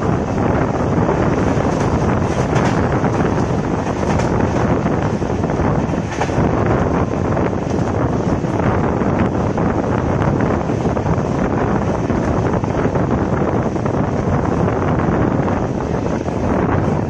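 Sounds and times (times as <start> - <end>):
train coaches running on track: 0.0 - 17.0
wind buffeting microphone: 0.0 - 17.0.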